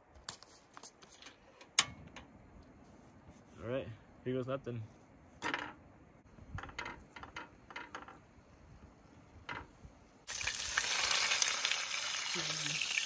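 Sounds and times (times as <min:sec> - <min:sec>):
fish sizzling in hot oil: 0:10.3 - 0:13.0.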